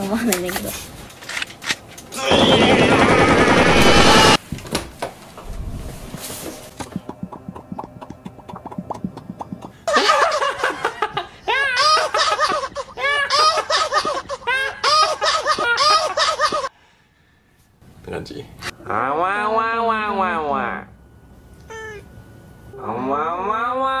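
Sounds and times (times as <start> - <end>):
gunfire burst: 2.3 - 4.4
high-pitched laughter: 9.9 - 16.7.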